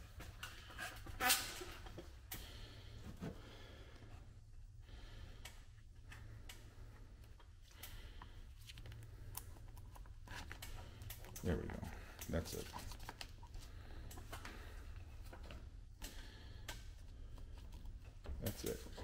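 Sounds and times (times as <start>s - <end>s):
steady low hum: 0.0s - 19.0s
handling clicks and scrapes: 16.6s - 19.0s.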